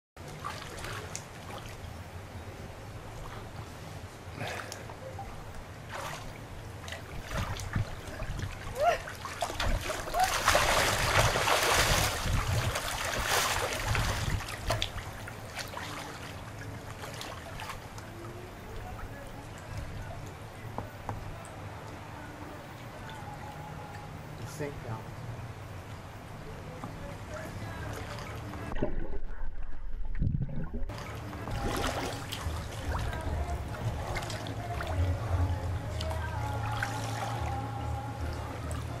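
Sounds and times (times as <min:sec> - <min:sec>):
pool water splashing: 0:00.2 - 0:39.0
water lapping and trickling: 0:00.2 - 0:39.0
muffled underwater rumble: 0:27.3 - 0:39.0
underwater bubbling: 0:28.5 - 0:39.0.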